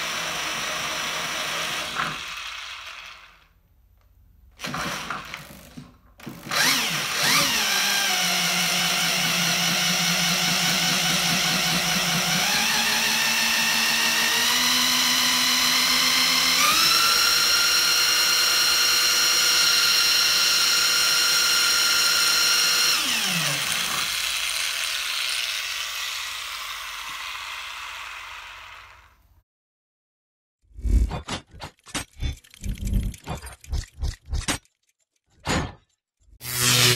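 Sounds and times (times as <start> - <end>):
power tool motor whine: 6.4 - 29.2, 36.4 - 36.9.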